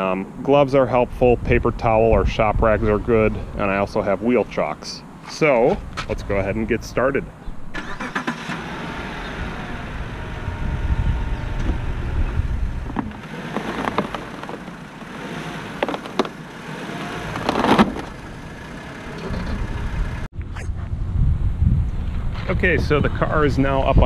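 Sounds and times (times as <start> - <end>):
car engine running at low speed: 8.4 - 20.3.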